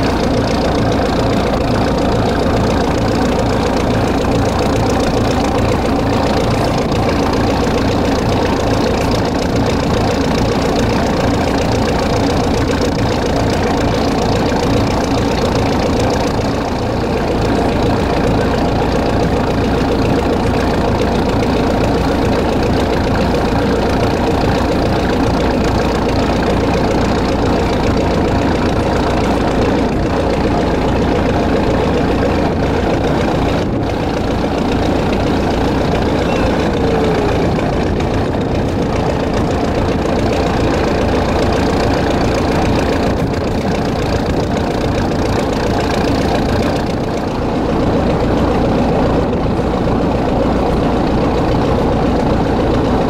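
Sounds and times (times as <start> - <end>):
ferry engine droning: 0.0 - 53.0
water washing alongside boat: 0.0 - 53.0.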